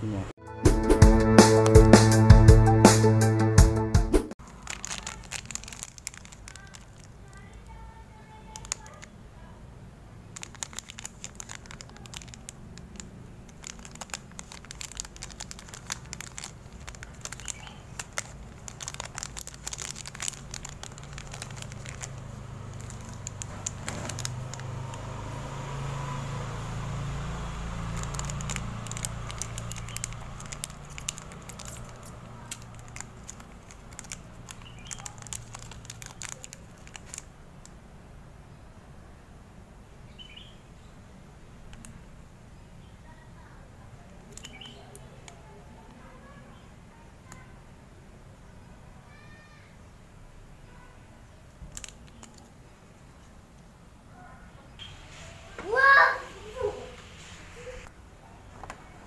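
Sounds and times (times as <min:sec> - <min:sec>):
foil sachet tearing: 0:04.4 - 0:09.1, 0:10.4 - 0:37.4
foil sachets crinkling: 0:04.4 - 0:09.2, 0:10.2 - 0:37.7, 0:44.3 - 0:45.4, 0:51.7 - 0:52.5.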